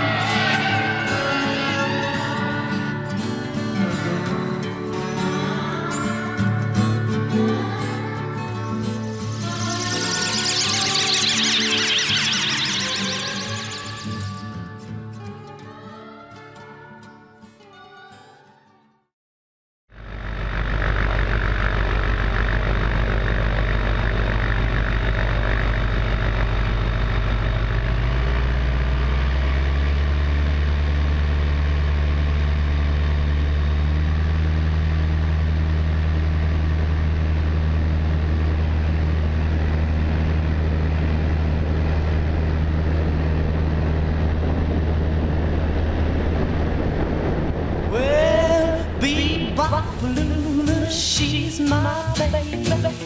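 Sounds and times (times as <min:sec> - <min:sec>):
aircraft piston engine running: 0:20.0 - 0:47.9.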